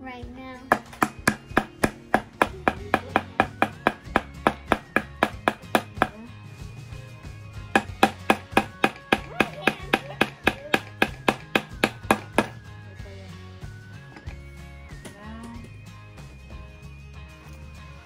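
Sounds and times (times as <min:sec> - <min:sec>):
hammer driving nails into wood: 0:00.7 - 0:06.2, 0:07.7 - 0:12.6.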